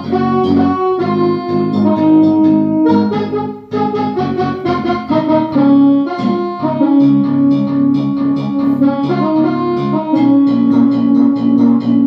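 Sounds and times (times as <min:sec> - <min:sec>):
synthesizer melody: 0:00.0 - 0:12.0.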